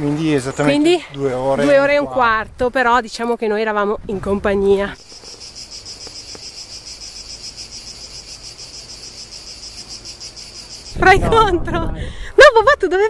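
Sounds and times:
cicadas buzzing: 0:04.4 - 0:11.6.

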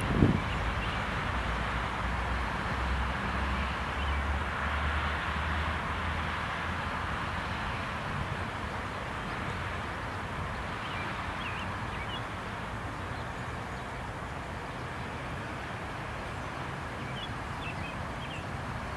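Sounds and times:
train rumbling: 0:00.0 - 0:03.6
bird chirps: 0:10.8 - 0:12.4, 0:17.0 - 0:18.5.

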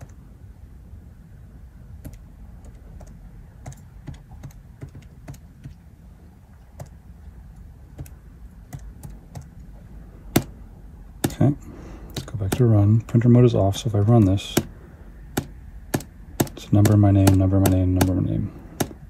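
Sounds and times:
calculator keys clicking: 0:02.0 - 0:05.8, 0:06.8 - 0:09.7, 0:12.1 - 0:12.7, 0:15.3 - 0:18.2, 0:18.8 - 0:19.0.

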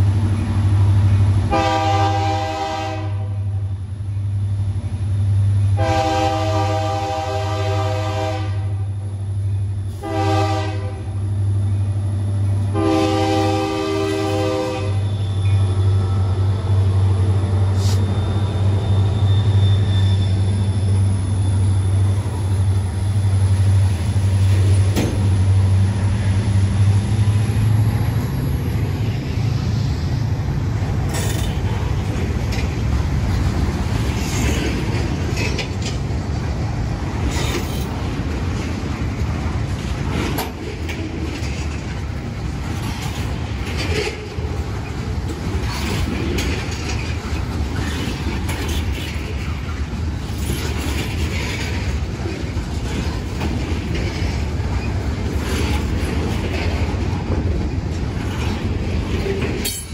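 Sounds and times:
locomotive engine droning: 0:00.0 - 0:59.9
locomotive horn: 0:01.5 - 0:03.6, 0:05.7 - 0:09.0, 0:09.9 - 0:11.2, 0:12.7 - 0:15.8
freight cars clattering on rails: 0:17.7 - 0:29.2, 0:30.5 - 0:59.9.

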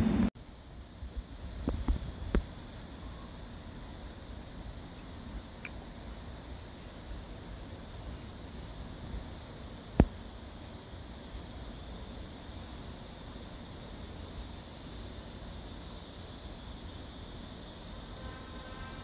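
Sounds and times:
outdoor background hiss: 0:00.0 - 0:19.0
insects chirring: 0:00.3 - 0:19.0
sharp click: 0:10.0 - 0:10.2.

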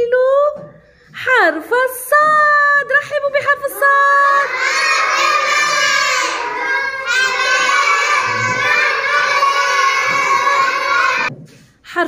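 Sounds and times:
young children singing together: 0:04.3 - 0:11.3.

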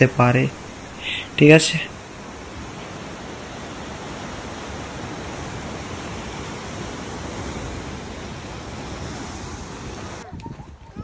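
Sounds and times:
sea surf breaking on rocks: 0:00.0 - 0:10.2.

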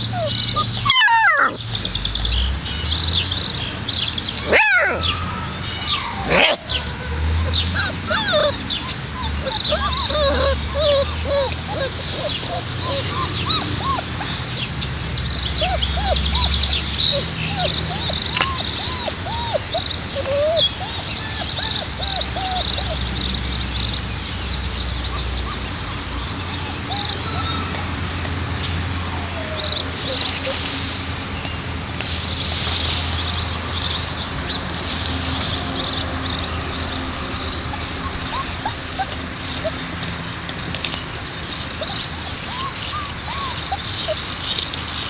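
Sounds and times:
puppies yipping and whimpering: 0:00.0 - 0:02.0, 0:04.4 - 0:14.7, 0:15.3 - 0:23.6, 0:24.9 - 0:27.9, 0:28.9 - 0:30.8, 0:36.9 - 0:40.2, 0:41.5 - 0:44.9.

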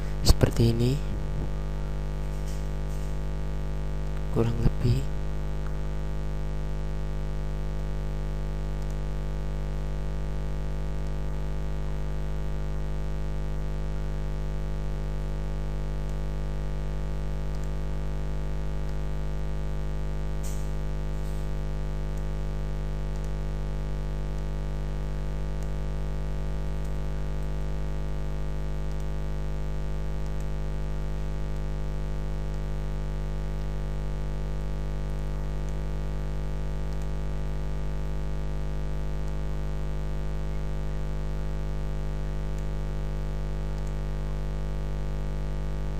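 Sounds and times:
electrical mains hum: 0:00.0 - 0:45.9
faint click: 0:17.5 - 0:17.7.

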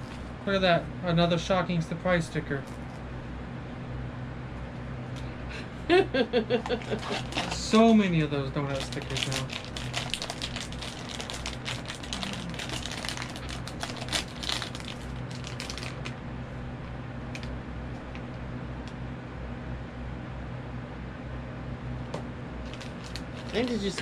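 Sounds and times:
steady low hum: 0:00.0 - 0:24.0
foil bag crinkling: 0:06.8 - 0:07.8, 0:08.7 - 0:16.2, 0:22.6 - 0:24.0.

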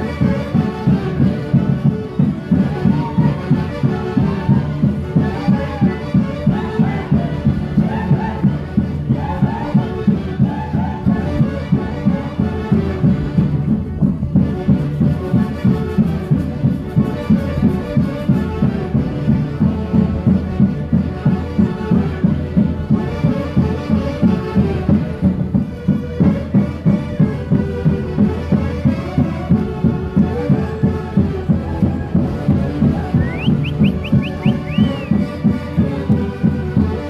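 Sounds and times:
wind instruments playing melody: 0:00.0 - 0:37.0
steady beat: 0:32.2 - 0:35.8.

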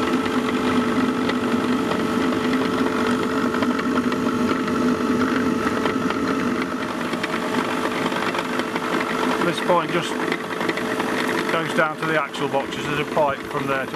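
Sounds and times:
blower fan humming: 0:00.0 - 0:13.9.

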